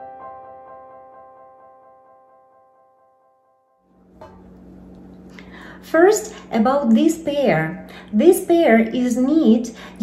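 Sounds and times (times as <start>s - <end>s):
piano music: 0.0s - 5.3s.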